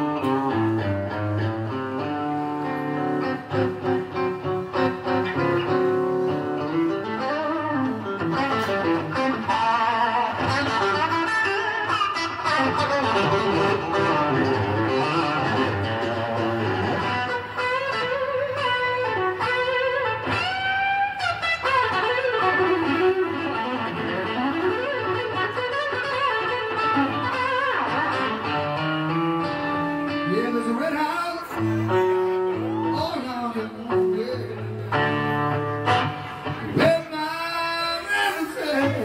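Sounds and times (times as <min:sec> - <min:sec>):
electric guitar lead: 0:00.0 - 0:39.0.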